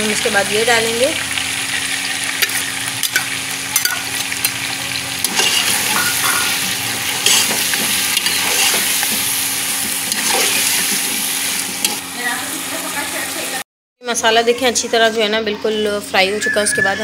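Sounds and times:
vegetables sizzling in oil: 0.0s - 13.6s
metal spoon scraping a pot: 5.2s - 12.0s.

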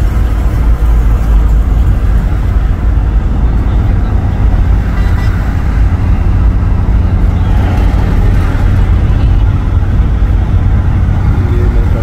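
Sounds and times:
road and wind noise inside vehicle: 0.0s - 12.0s.

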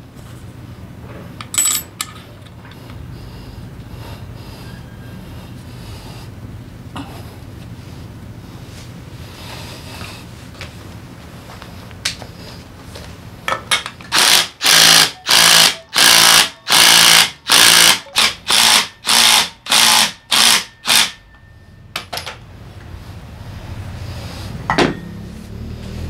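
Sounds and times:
impact wrench bursts: 14.1s - 21.3s.

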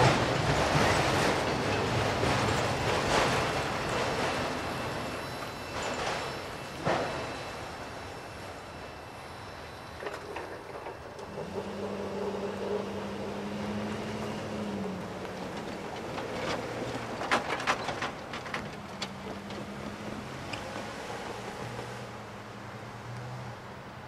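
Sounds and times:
trailer clanking and rattling: 0.0s - 9.0s, 9.8s - 22.5s
passing car: 11.1s - 24.0s.

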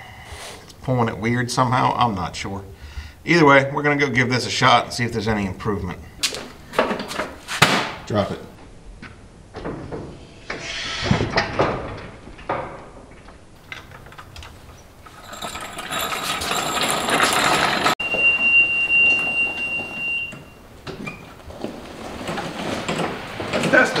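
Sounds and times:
floor jack rattling and scraping: 13.8s - 18.0s, 21.2s - 24.0s
electric cart high whine: 15.0s - 24.0s.

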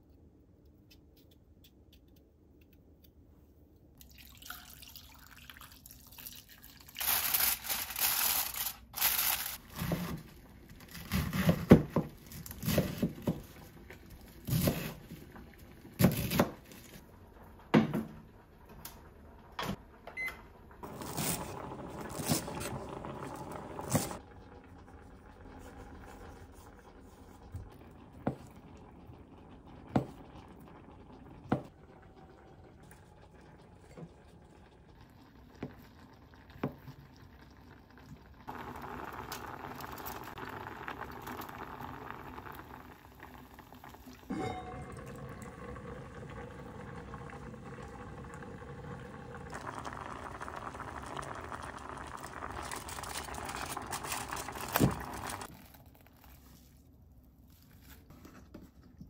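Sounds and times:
pot simmering with bubbling hiss: 20.6s - 56.4s.

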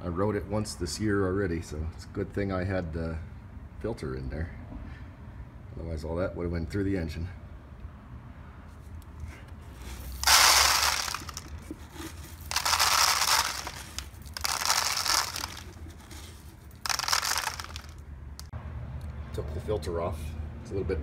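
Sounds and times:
dry oats rustling: 9.7s - 18.1s.

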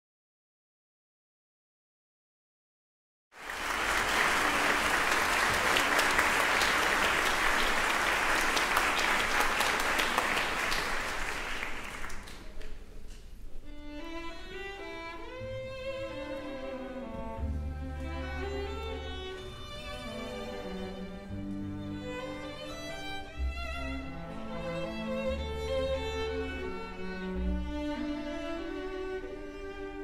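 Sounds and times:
audience applauding: 3.4s - 12.8s
orchestra with bowed strings: 13.6s - 30.0s.

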